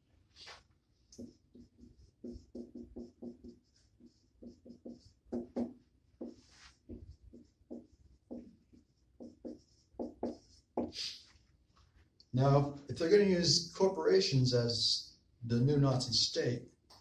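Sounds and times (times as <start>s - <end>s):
marker squeaking on whiteboard: 1.0s - 11.5s.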